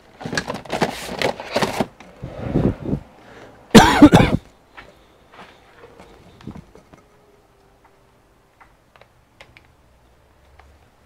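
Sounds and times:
objects clattering and rustling: 0.0 - 2.3, 3.8 - 7.2.

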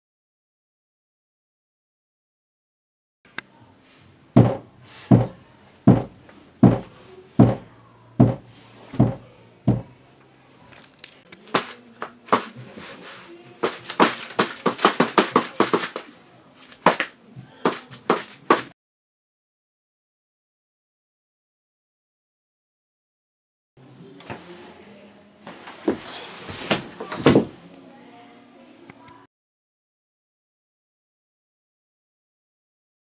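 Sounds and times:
head knocking against wall: 4.4 - 9.9.

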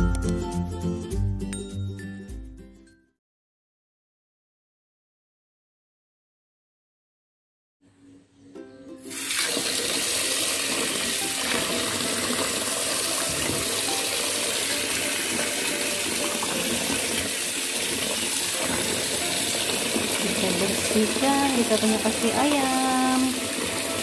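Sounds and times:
tap water running into a tub: 9.1 - 24.0.

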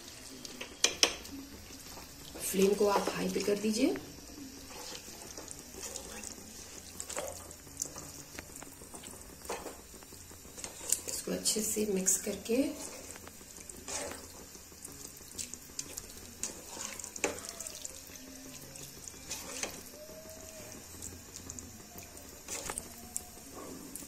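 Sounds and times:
spatula scraping and tapping pan: 4.6 - 11.2, 12.2 - 14.6, 15.8 - 17.6, 19.2 - 19.9.

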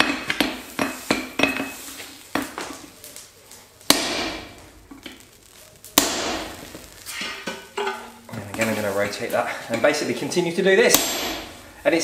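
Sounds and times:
hammer striking metal punch: 3.9 - 4.5, 10.9 - 11.6.

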